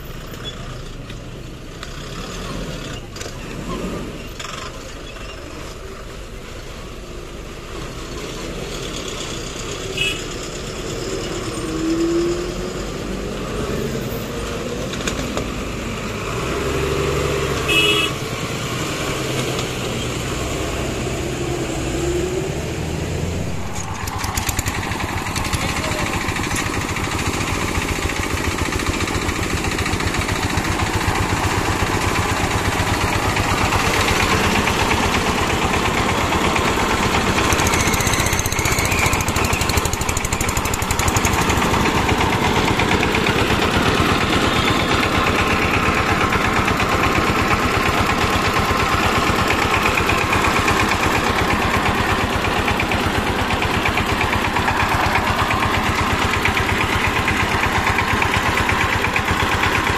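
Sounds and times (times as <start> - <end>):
lorry diesel engines revving: 0.0 - 59.9
small diesel engine chugging: 0.0 - 59.9
short horn beeps: 10.0 - 10.3, 17.7 - 18.2.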